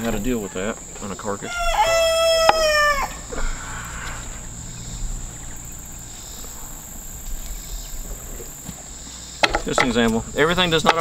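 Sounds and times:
high-pitched insect chorus: 0.0s - 11.0s
rooster crowing: 1.3s - 7.5s.

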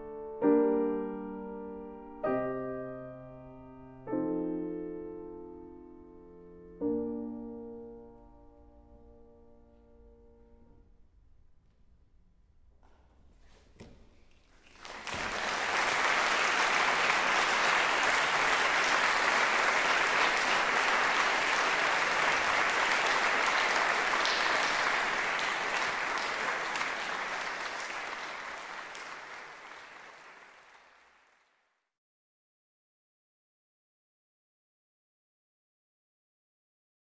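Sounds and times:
audience applauding: 14.5s - 31.6s.

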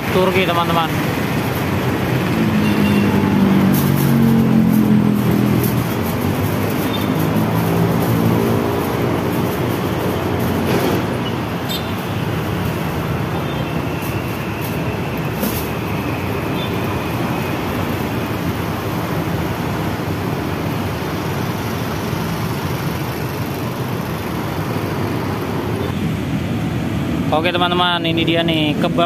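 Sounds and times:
road traffic noise: 0.0s - 29.0s
aluminium foil crinkling: 3.0s - 10.6s.

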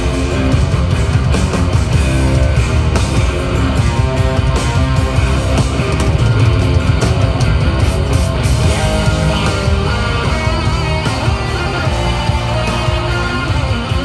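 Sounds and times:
rock band playing: 0.0s - 14.0s.

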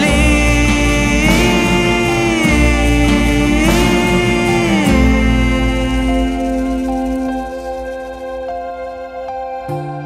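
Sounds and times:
slow acoustic guitar music: 0.0s - 10.0s.

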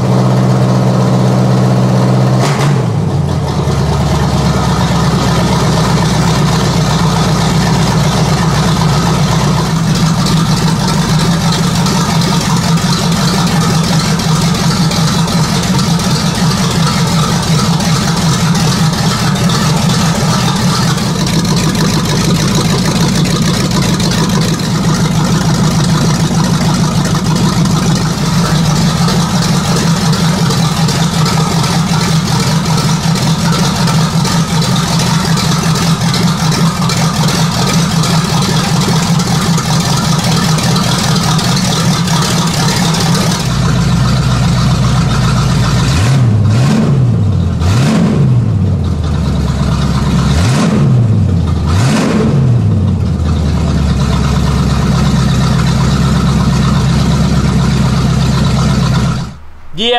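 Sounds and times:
car engine idling and revving: 0.0s - 59.8s.

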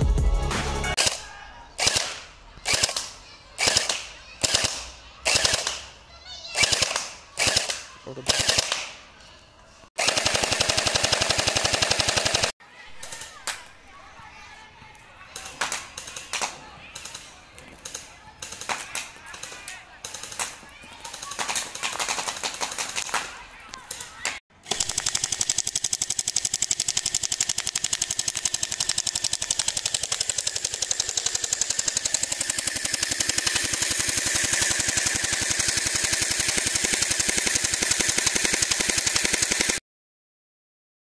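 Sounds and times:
scattered clicks: 1.8s - 5.9s, 14.9s - 39.8s
toy blaster full auto rattle: 1.8s - 9.0s, 10.0s - 13.7s, 15.3s - 39.8s.

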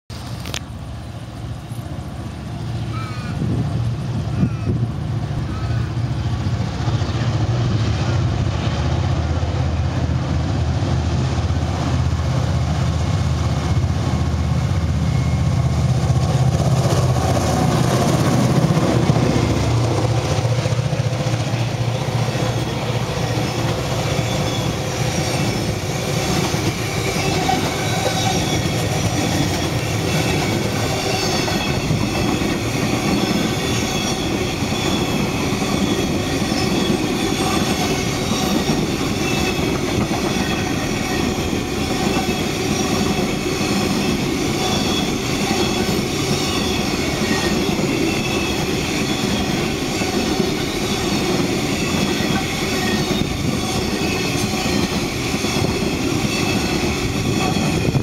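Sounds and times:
locomotive engine drone: 0.1s - 58.0s
train wheel clatter: 6.0s - 58.0s
train wheels squealing: 13.6s - 17.2s, 21.3s - 58.0s.

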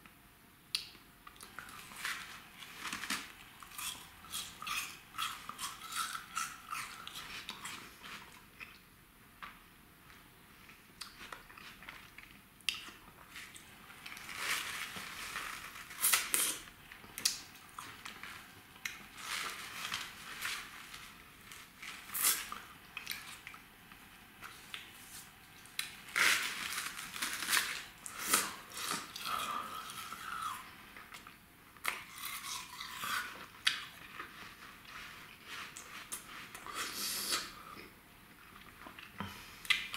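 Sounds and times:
cardboard tube crinkling: 13.3s - 17.0s, 17.8s - 22.7s, 24.4s - 29.1s.

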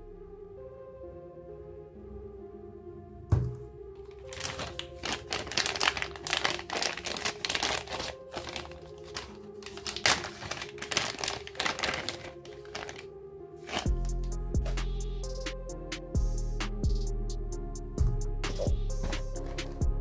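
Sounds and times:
plastic pouch crinkling: 4.0s - 14.2s.

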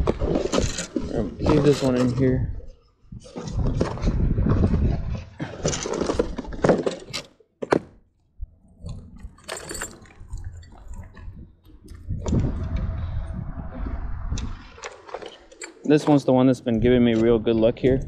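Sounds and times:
fishing tackle rattling: 8.8s - 12.4s.

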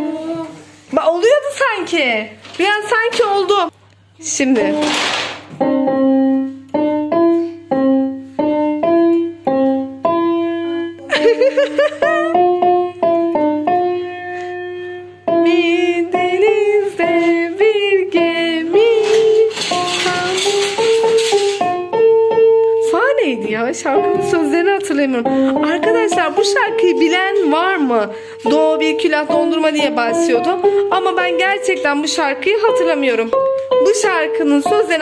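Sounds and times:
electronic keyboard notes: 5.6s - 11.1s, 12.2s - 35.0s
person's voice: 22.9s - 33.3s.

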